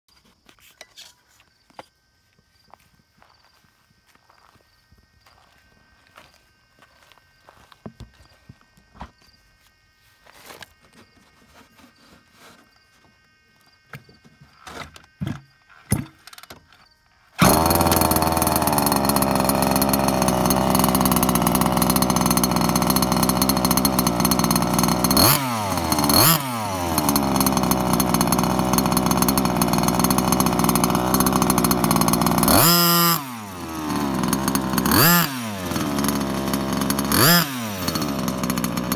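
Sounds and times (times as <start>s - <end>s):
small two-stroke engine revving: 17.4s - 38.9s.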